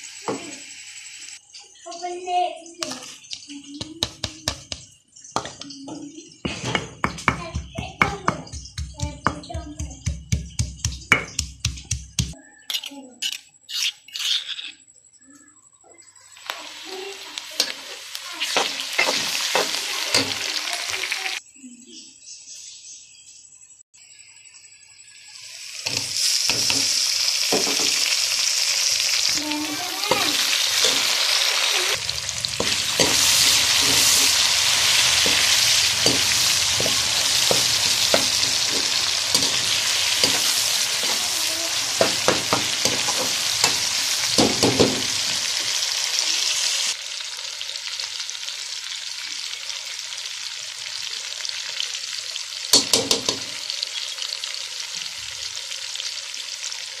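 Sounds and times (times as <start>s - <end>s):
vegetables sizzling in hot oil: 0.0s - 2.0s, 16.1s - 21.4s, 25.0s - 57.0s
spoon clinking and scraping pan: 17.6s - 20.6s, 25.9s - 28.0s, 30.0s - 31.3s, 32.0s - 45.7s.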